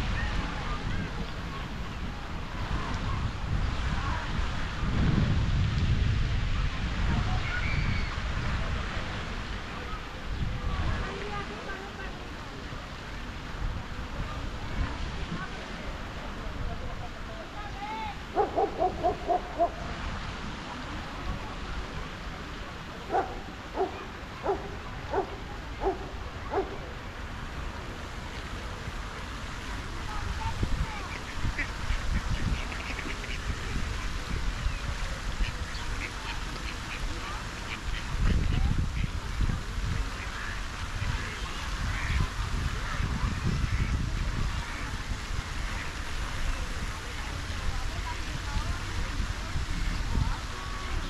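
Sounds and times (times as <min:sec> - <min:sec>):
fountain jets falling into water: 0:00.0 - 0:51.0
wind buffeting microphone: 0:00.0 - 0:51.0.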